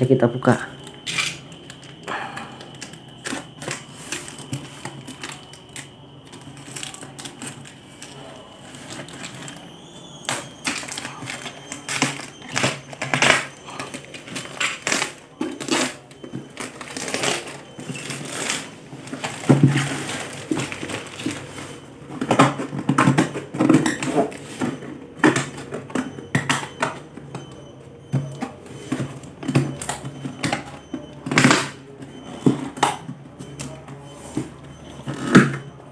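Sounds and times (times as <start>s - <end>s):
plastic wrap crinkling and tearing: 0.8s - 22.7s.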